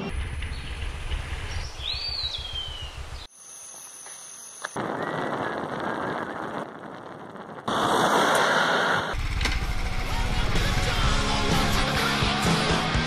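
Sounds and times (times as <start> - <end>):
wind buffeting microphone: 0.0 - 3.2, 4.8 - 9.4.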